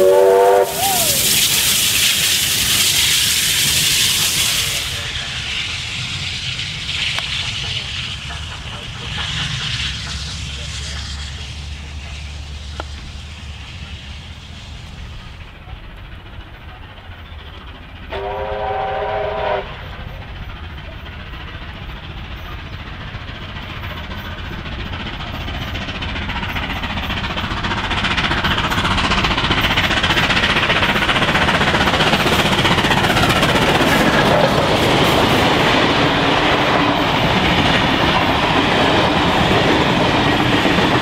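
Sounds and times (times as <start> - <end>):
steam locomotive whistle: 0.0 - 5.1, 18.1 - 20.2
train running noise: 0.0 - 41.0.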